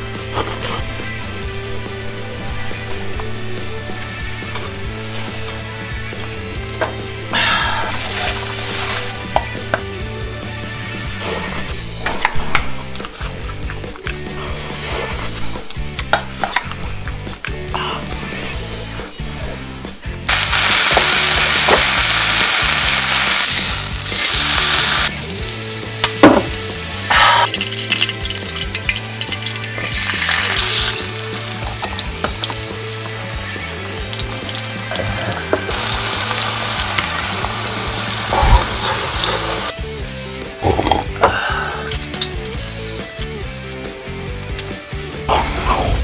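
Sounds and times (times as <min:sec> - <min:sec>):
food sizzling in hot fat: 0:04.0 - 0:09.8, 0:20.3 - 0:39.8, 0:41.8 - 0:45.1.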